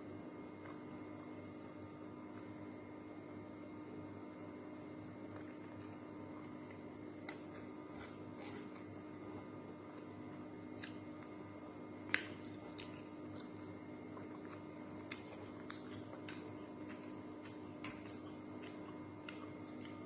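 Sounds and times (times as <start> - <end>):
faint chewing: 5.3 - 9.0, 9.9 - 11.4, 12.1 - 20.0.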